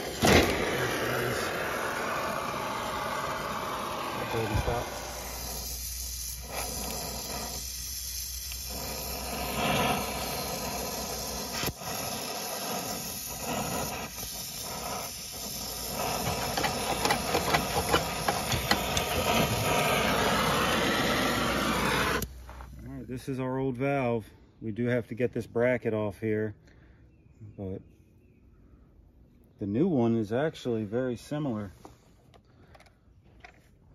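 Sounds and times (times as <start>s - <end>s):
torch flame hissing: 0.0s - 22.7s
sharp crackles and pops: 0.0s - 23.0s.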